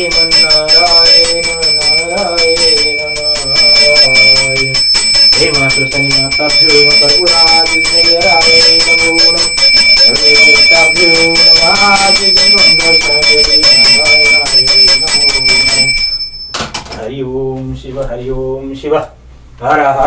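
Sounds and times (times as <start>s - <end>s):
man chanting a hymn: 0.0s - 4.8s, 5.4s - 15.7s
hand bell ringing: 0.0s - 16.8s.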